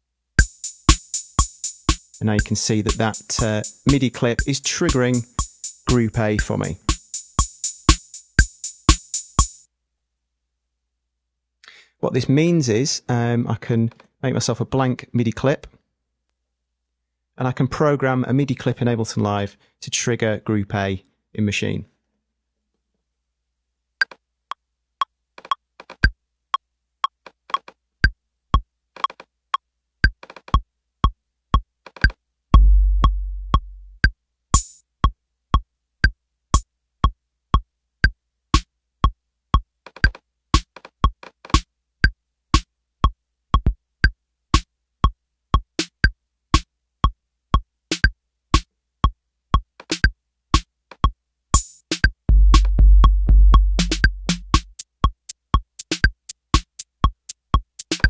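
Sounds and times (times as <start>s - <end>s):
hi-hat hiss: 0.4s - 9.6s, 34.6s - 34.8s, 53.6s - 58.0s
deep kick drum boom: 32.6s - 34.0s, 52.3s - 54.8s
electronic drum hits: 32.6s - 34.0s, 52.3s - 54.8s.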